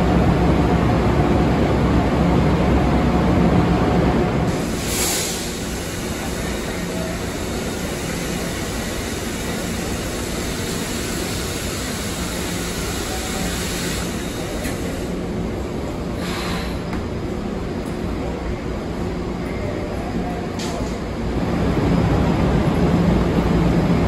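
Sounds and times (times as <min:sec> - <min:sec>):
train cabin rushing drone: 0:00.0 - 0:19.4.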